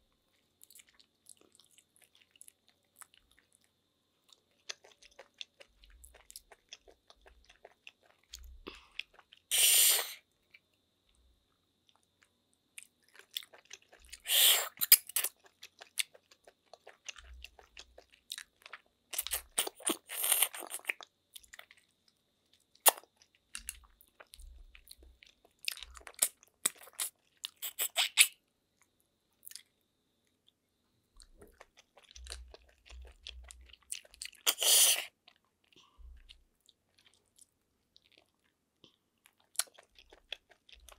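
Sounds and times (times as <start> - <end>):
chewing and crunching: 0.3 - 9.5, 11.8 - 29.8, 31.2 - 40.9
loud slurping: 9.5 - 10.2
wet mouth clicks: 22.8 - 23.0, 26.2 - 28.4.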